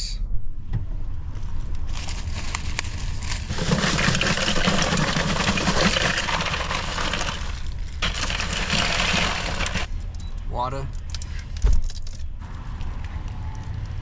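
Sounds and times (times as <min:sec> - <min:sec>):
ice cubes rattling and sliding: 0:01.9 - 0:09.9
plastic bag crinkling: 0:01.9 - 0:09.9.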